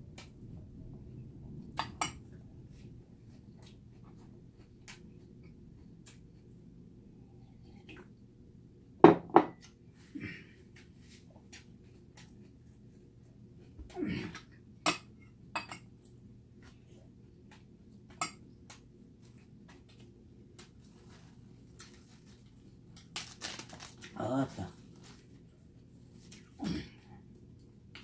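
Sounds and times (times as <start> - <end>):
glass cup knocking on wooden table: 9.0 - 9.6.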